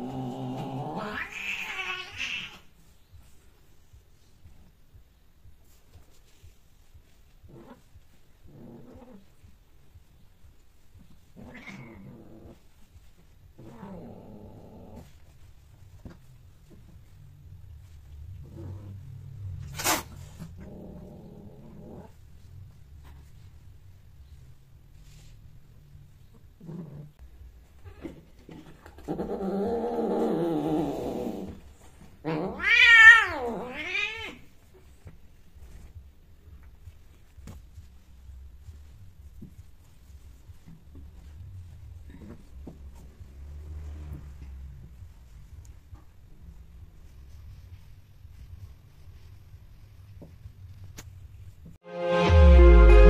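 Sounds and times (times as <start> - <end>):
cat growling yowl: 0.0 - 2.6, 11.4 - 12.6, 32.2 - 34.4
cat yowling: 32.3 - 34.4.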